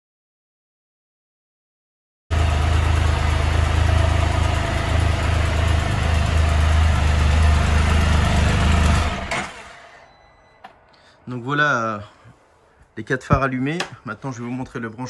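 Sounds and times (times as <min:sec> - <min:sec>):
engine idling: 0:02.3 - 0:11.0.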